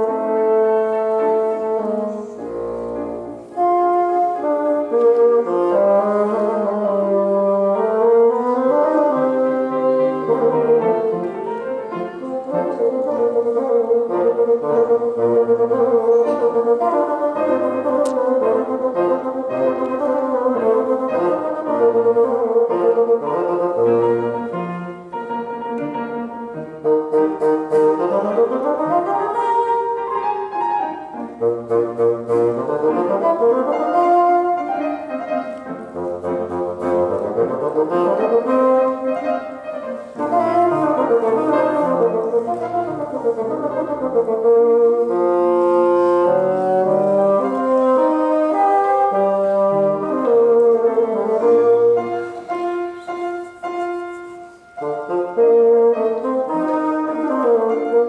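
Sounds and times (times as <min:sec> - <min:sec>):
bassoon melody: 0:00.0 - 0:58.0
piano accompaniment: 0:00.0 - 0:58.0.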